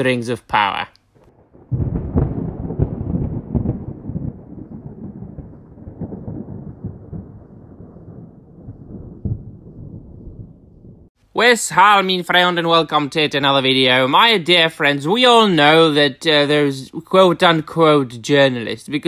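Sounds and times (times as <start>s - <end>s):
thunder crack and rumble: 1.2s - 11.2s.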